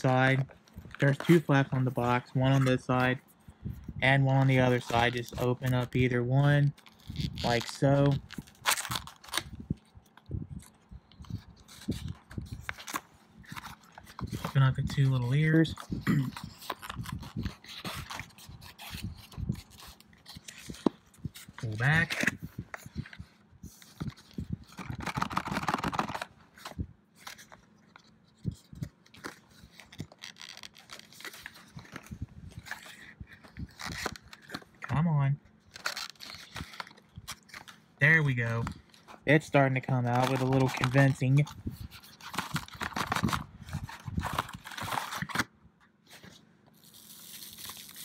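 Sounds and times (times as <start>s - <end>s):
cardboard box crinkling and scraping: 0.0s - 3.2s, 35.7s - 45.5s
cardboard and plastic crinkling: 0.0s - 3.3s, 4.2s - 10.2s, 11.2s - 45.5s.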